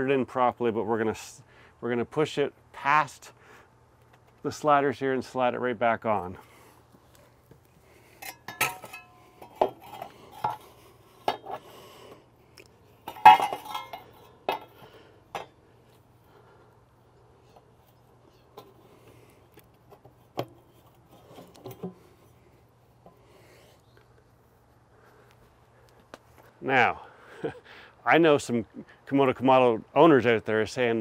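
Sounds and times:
metal plate clinking and scraping: 0:08.2 - 0:11.6, 0:13.0 - 0:15.6.

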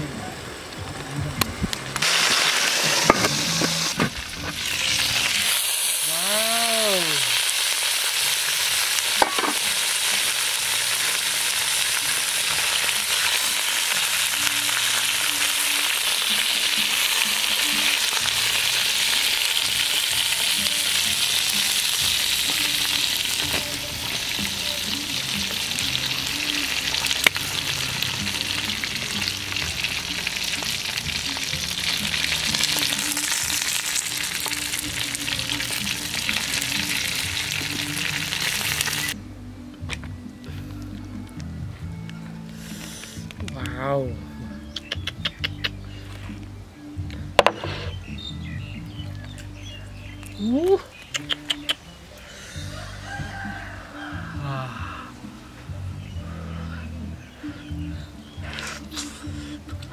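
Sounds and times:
meat sizzling in a pot: 0:02.0 - 0:39.2.

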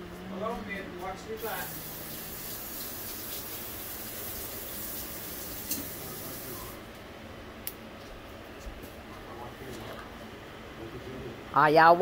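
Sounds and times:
tap running water into sink: 0:01.7 - 0:06.0.

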